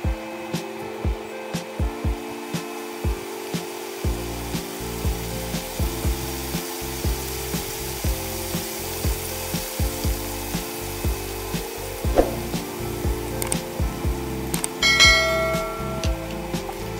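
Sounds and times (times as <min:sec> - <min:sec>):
background music with steady beat: 0:00.0 - 0:16.9
garlic sizzling in hot oil: 0:03.9 - 0:15.6.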